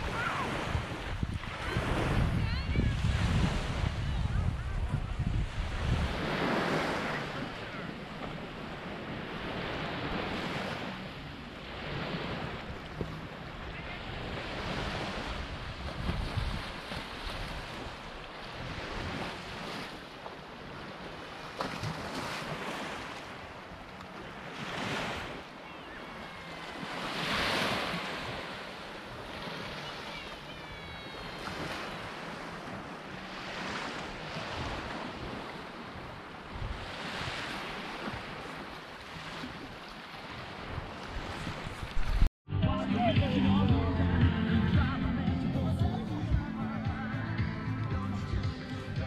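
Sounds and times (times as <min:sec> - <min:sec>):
wind buffeting microphone: 0:00.0 - 0:07.6, 0:14.2 - 0:19.4, 0:33.9 - 0:38.6, 0:40.4 - 0:42.3
small waves washing on beach: 0:00.0 - 0:42.3.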